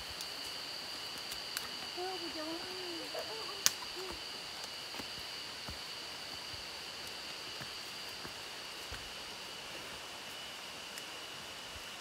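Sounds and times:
insects droning: 0.0 - 12.0
footsteps on leafy trail: 1.3 - 10.5.

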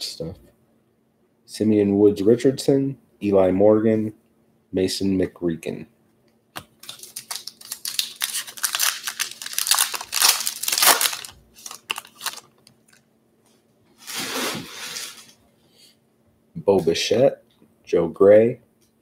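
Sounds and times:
foil wrapper tearing and crinkling: 6.8 - 13.0.

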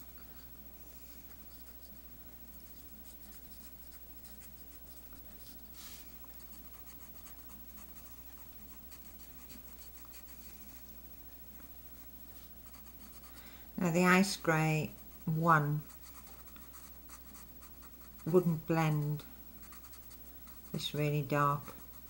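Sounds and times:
marker scratching on paper: 1.1 - 10.7, 14.1 - 22.0.

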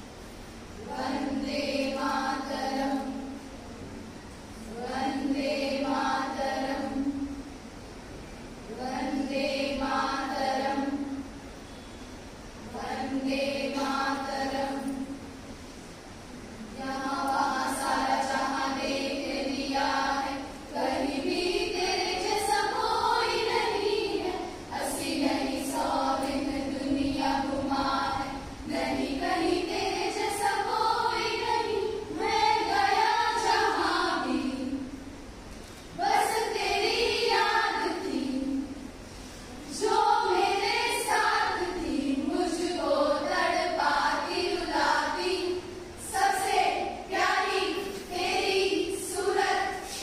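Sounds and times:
women singing together: 0.8 - 3.5, 4.6 - 7.5, 8.7 - 11.5, 12.6 - 15.3, 16.6 - 35.2, 35.9 - 50.0.

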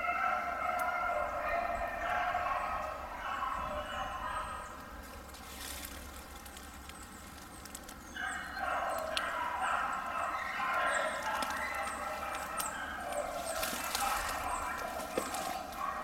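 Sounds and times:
dogs baying: 0.0 - 4.9, 8.1 - 16.0.

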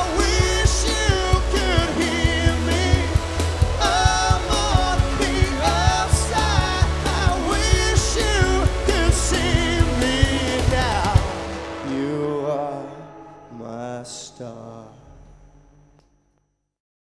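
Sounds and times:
bass guitar: 0.0 - 12.2
drums: 0.0 - 12.6
electric guitar: 0.0 - 13.9
male lead vocal: 0.0 - 15.3
backing vocal: 0.0 - 15.5
keyboard: 0.0 - 16.1.

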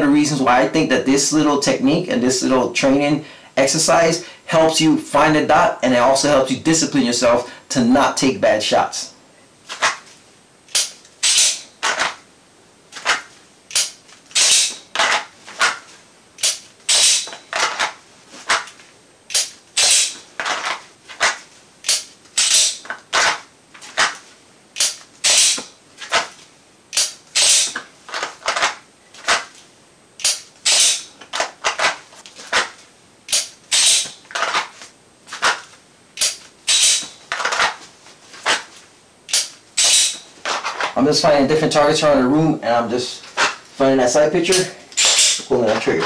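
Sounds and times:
pistol scraping in holster: 9.7 - 12.2, 13.0 - 24.2, 24.8 - 26.4, 27.0 - 29.6, 30.2 - 41.0, 43.2 - 43.8, 44.5 - 46.0
pistol clicks: 10.7 - 12.0, 13.1 - 15.8, 16.4 - 17.4, 21.8 - 22.8, 24.8 - 25.7, 26.9 - 27.8, 30.2 - 31.1, 33.3 - 34.2, 39.3 - 40.2.

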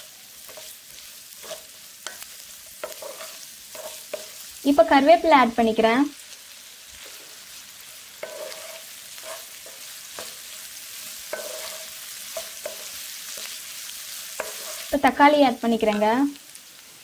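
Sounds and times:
onions sizzling in oil: 0.0 - 17.0
wooden spatula scraping pan: 0.5 - 4.4, 8.2 - 10.4, 11.3 - 13.5, 14.4 - 14.9.

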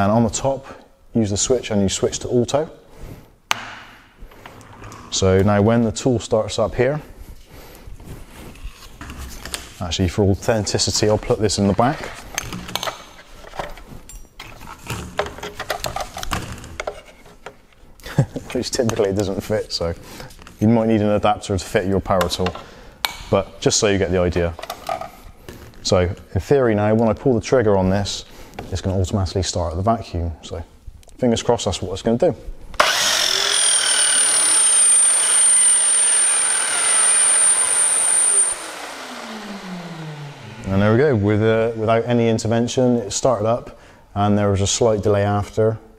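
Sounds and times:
mitre saw motor whining: 32.8 - 42.2
vacuum cleaner running: 32.8 - 42.8.

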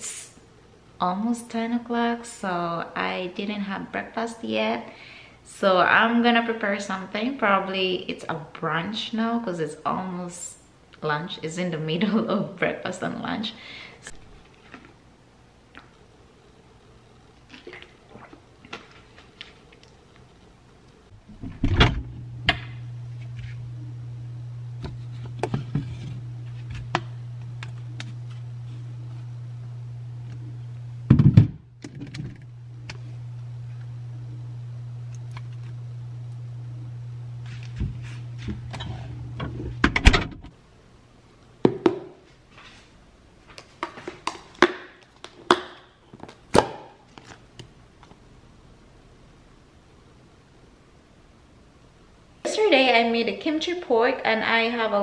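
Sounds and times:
refrigerator hum: 13.7 - 40.9.

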